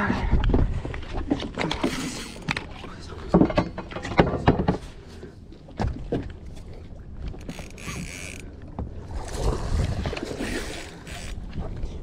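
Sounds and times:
knocks and bumps in a boat: 0.0s - 10.3s
fishing reel buzzing: 1.8s - 2.5s, 7.4s - 8.5s, 10.4s - 11.4s.

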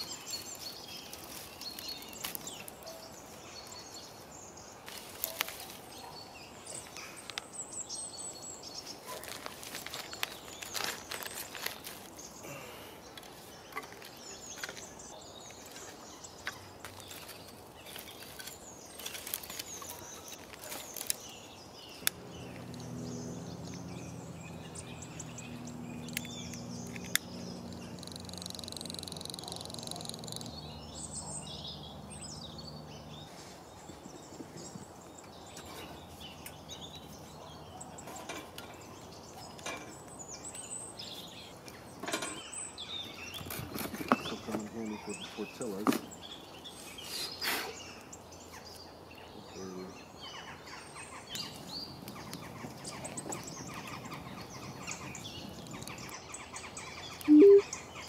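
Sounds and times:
twigs clicking and crackling: 0.0s - 4.1s, 4.8s - 6.0s, 6.7s - 7.5s, 8.8s - 23.0s, 23.6s - 30.6s, 51.2s - 57.4s
birds calling: 0.0s - 58.0s.

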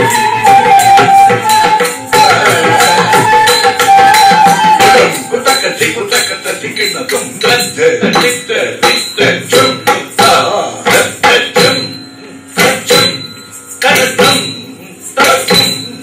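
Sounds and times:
ankle bells jingling: 0.0s - 10.5s
cymbals striking: 0.0s - 16.0s.

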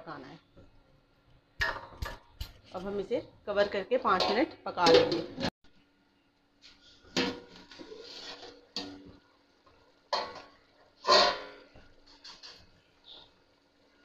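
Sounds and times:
faint steady hum: 5.6s - 14.0s
pot lid clanking against pot: 10.1s - 11.7s.

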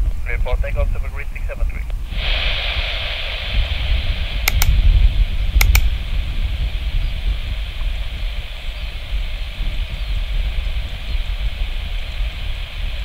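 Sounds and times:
distant jet engines rumbling: 0.0s - 13.0s
sharp clicks: 4.5s - 4.8s, 5.6s - 5.9s.

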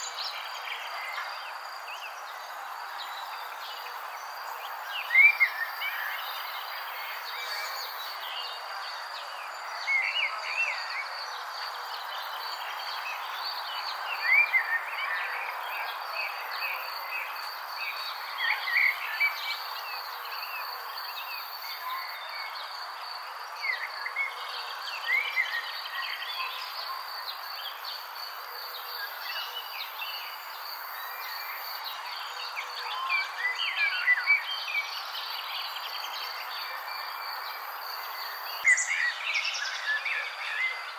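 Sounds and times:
crickets trilling: 0.0s - 40.9s.

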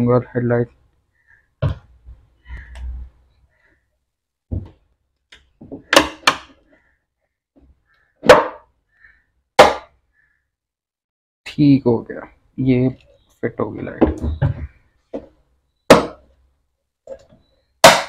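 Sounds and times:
plastic knocks and clicks: 1.6s - 1.9s.

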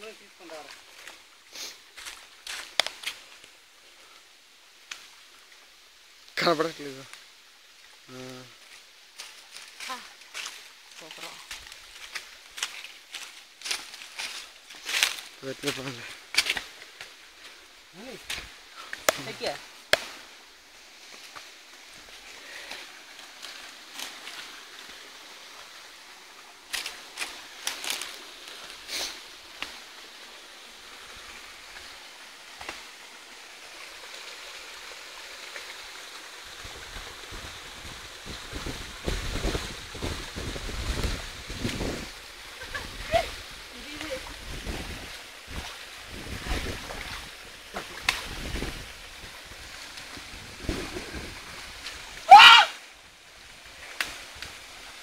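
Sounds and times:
waterfall rushing: 17.5s - 40.5s
wind buffeting microphone: 37.3s - 43.5s, 44.2s - 47.2s, 48.1s - 51.8s.

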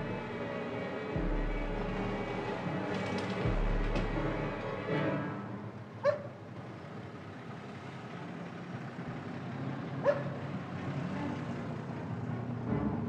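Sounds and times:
low street ambience: 0.0s - 13.0s
dog barking: 6.0s - 6.4s, 10.0s - 10.4s.

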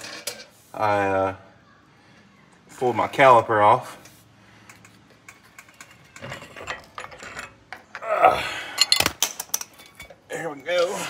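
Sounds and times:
small metallic clicks and rattles: 4.6s - 8.0s.

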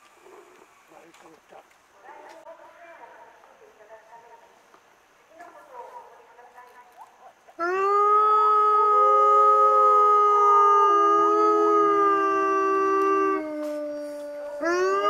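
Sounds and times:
wolves howling in chorus: 7.6s - 15.0s.

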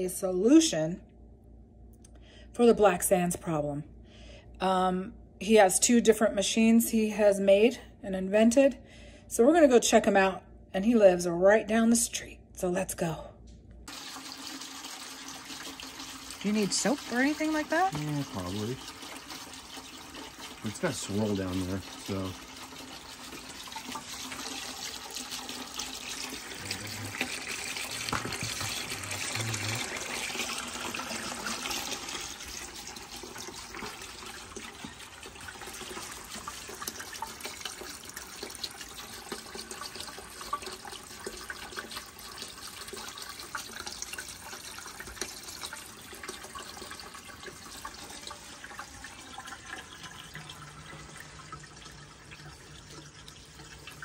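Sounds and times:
water splashing into plastic pan: 13.9s - 54.0s.

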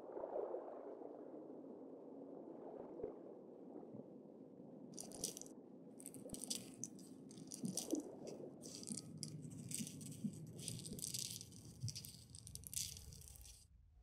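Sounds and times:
shaker-like rattling: 5.0s - 13.6s.

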